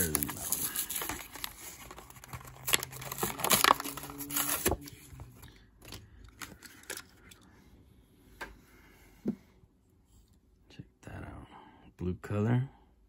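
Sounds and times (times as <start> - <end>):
cardboard ripping: 0.0 - 5.0
plastic crackling: 0.0 - 7.4.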